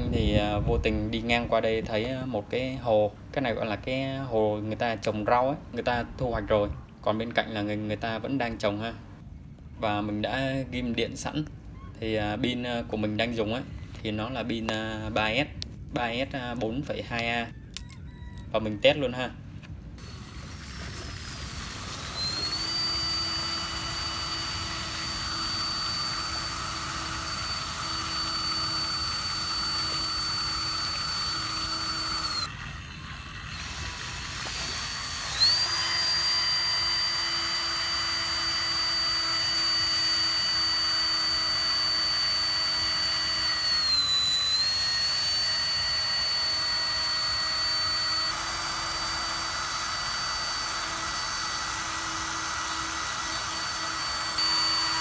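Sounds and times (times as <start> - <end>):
high-pitched pump motor whine: 20.0 - 55.0.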